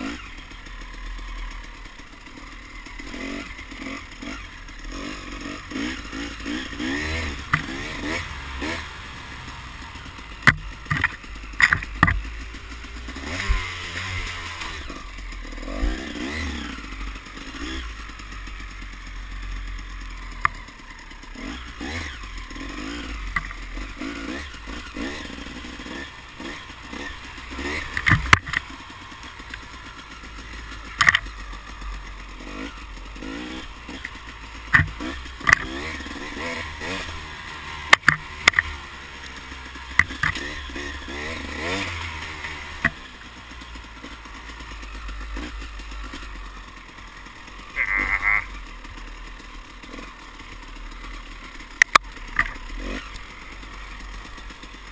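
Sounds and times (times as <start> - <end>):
off-road vehicle engine: 0.0 - 54.9.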